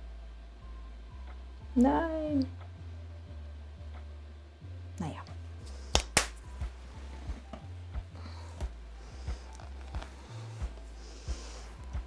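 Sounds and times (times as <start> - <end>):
music with beat and bass: 6.3 - 12.0.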